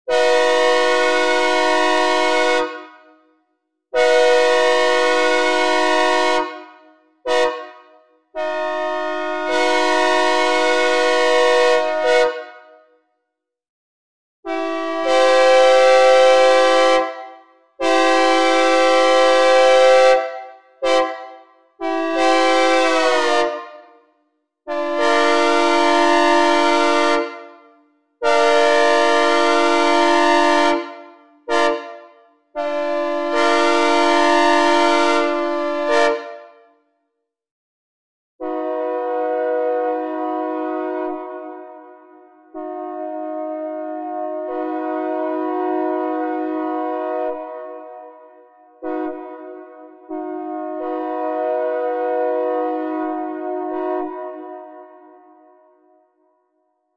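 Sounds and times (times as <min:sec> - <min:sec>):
synthesized locomotive air horn: 0:00.1 - 0:13.0, 0:14.4 - 0:24.0, 0:24.7 - 0:36.6, 0:38.4 - 0:56.2.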